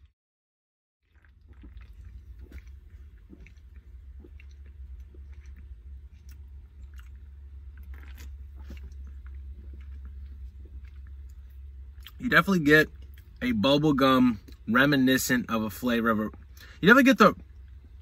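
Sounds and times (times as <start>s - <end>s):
steady low hum: 1.1s - 18.0s
lip smacks: 1.2s - 12.2s.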